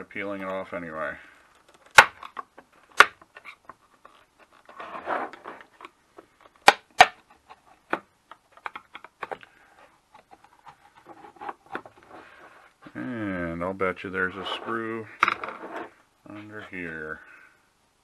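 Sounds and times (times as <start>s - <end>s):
label rustling: 0.2s - 13.0s.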